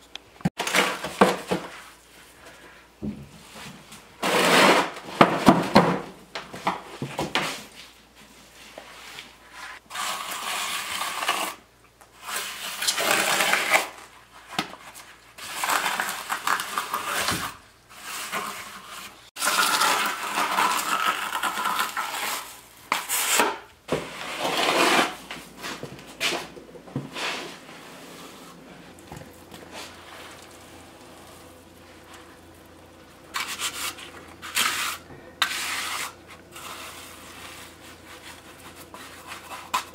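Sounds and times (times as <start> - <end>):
hand trowel scraping concrete: 4.2 - 5.0, 9.6 - 11.6, 15.0 - 39.9
shovel scraping wet concrete: 4.2 - 5.0, 9.8 - 11.6, 15.4 - 26.5, 27.2 - 39.9.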